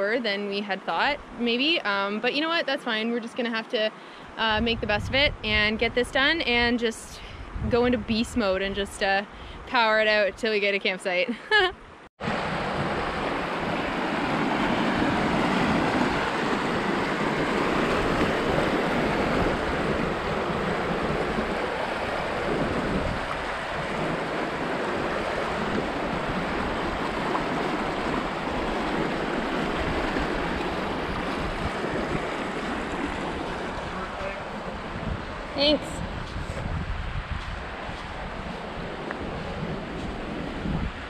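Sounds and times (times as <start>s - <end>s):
whitewater rushing over rocks: 12.2s - 35.8s.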